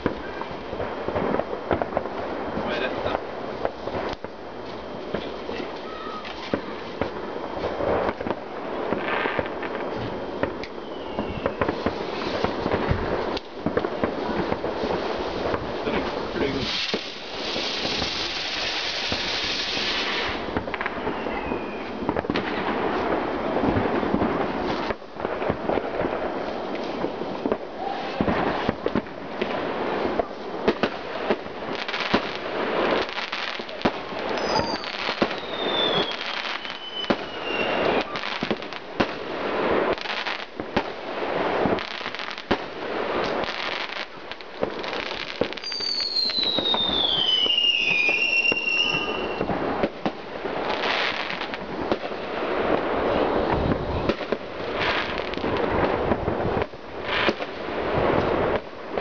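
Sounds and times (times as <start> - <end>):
falling firework whistle: 0.0 - 29.1, 30.0 - 39.2, 43.2 - 52.2
fireworks bangs and crackles: 0.0 - 59.0.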